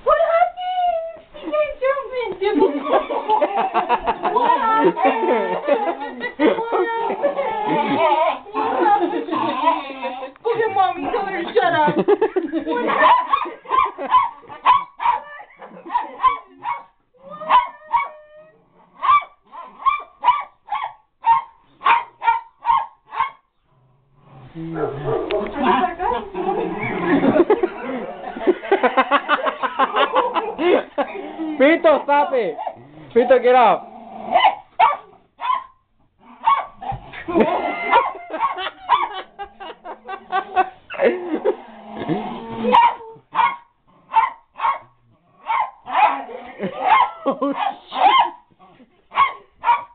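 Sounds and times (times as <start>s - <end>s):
person laughing: 2.6s - 10.4s, 25.5s - 31.2s, 37.1s - 42.4s, 46.5s - 47.6s
small dog barking: 12.8s - 15.3s, 15.9s - 18.2s, 19.0s - 23.4s, 34.3s - 35.8s, 36.4s - 37.0s, 37.9s - 39.2s, 42.7s - 48.4s, 49.1s - 49.9s.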